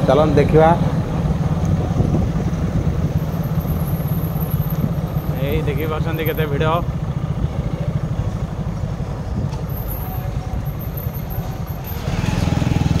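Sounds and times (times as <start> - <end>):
vehicle engines rumbling: 0.0 - 13.0.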